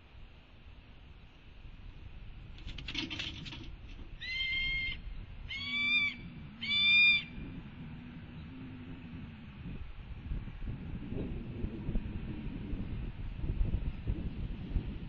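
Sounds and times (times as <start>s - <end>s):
brief rustle: 2.5s - 4.1s
hawk begging calls: 4.2s - 7.4s.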